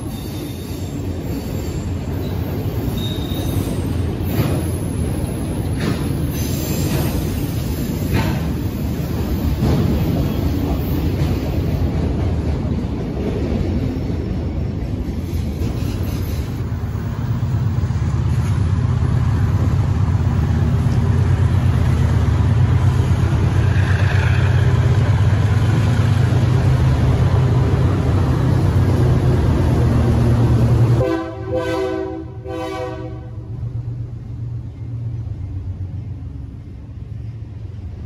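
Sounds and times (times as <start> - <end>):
train rumbling past: 0.0 - 38.0
locomotive horn: 31.0 - 33.6.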